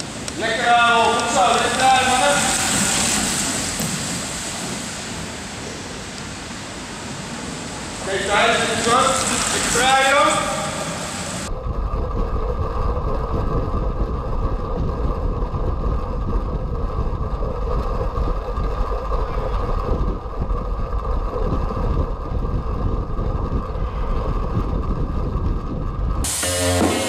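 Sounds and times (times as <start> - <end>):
muffled wind and tyre rush: 0.0 - 26.4
electronic music: 26.2 - 27.0.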